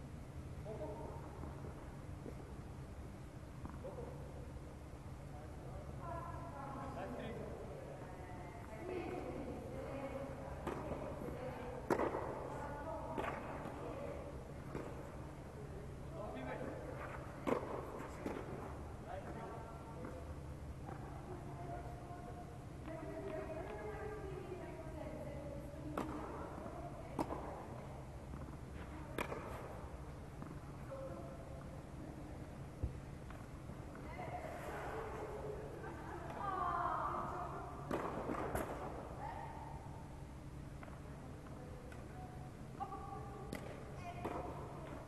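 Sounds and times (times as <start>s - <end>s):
steady low hum: 0.0s - 45.0s
racket striking tennis ball: 17.0s - 18.8s, 28.3s - 30.6s, 37.8s - 39.1s
tennis ball pocks: 28.3s - 30.6s.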